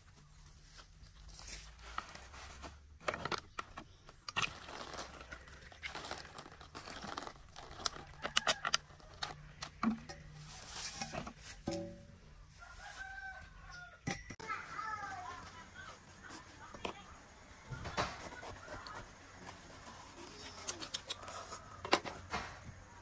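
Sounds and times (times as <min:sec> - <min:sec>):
rustling and crinkling: 0:00.0 - 0:13.9.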